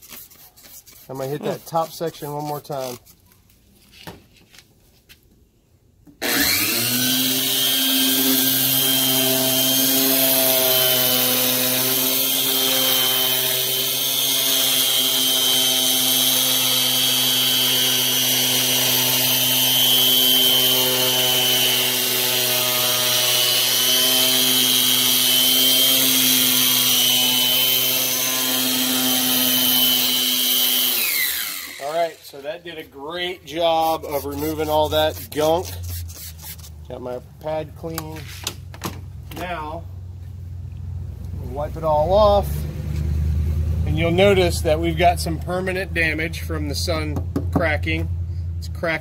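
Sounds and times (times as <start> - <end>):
electric polisher whining: 6.2 - 32.4.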